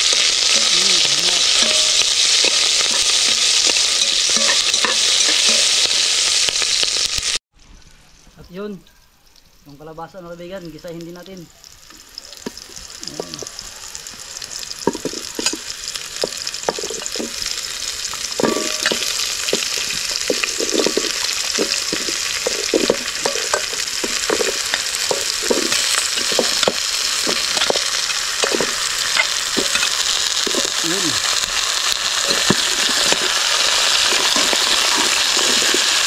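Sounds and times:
food sizzling in hot oil: 0.0 - 7.4, 9.4 - 36.0
stirring knocks and scrapes on pot: 0.5 - 5.7, 14.8 - 17.5, 18.1 - 30.8, 32.2 - 36.0.

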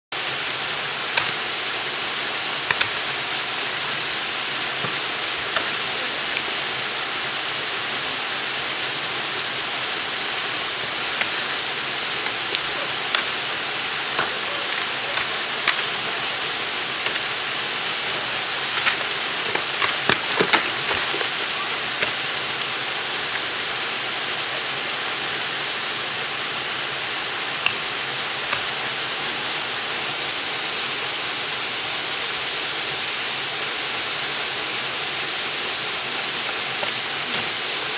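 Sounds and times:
steady hiss: 0.1 - 37.9
ice axe striking ice: 1.1 - 1.4, 2.7 - 3.0, 14.1 - 16.4, 17.0 - 17.4, 18.0 - 22.4.

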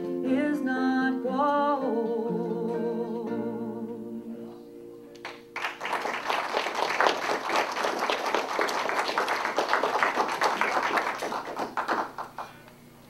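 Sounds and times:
audience applauding: 5.2 - 12.6.

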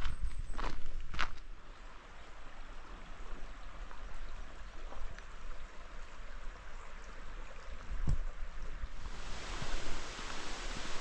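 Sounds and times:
rushing creek water: 1.1 - 11.0.

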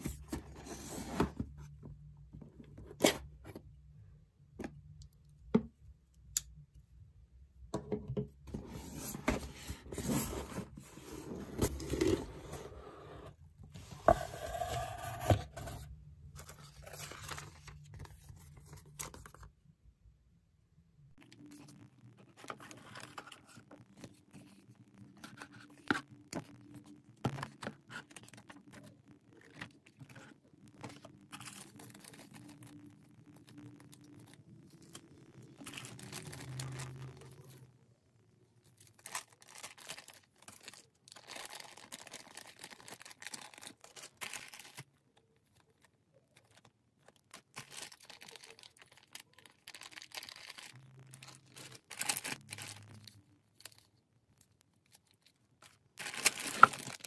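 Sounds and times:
plastic bags crinkling: 35.6 - 37.5, 38.8 - 45.0, 45.8 - 53.9, 54.8 - 57.0.

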